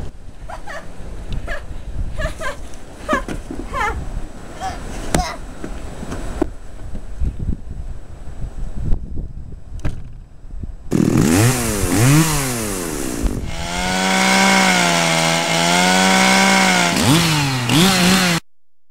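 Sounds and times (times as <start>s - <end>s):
small engine revving: 10.9s - 18.4s.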